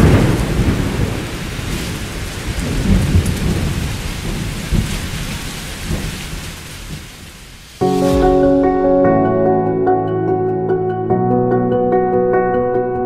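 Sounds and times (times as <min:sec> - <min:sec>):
rolling thunder: 0:00.0 - 0:06.2, 0:07.9 - 0:09.6
steady rain: 0:00.0 - 0:08.6.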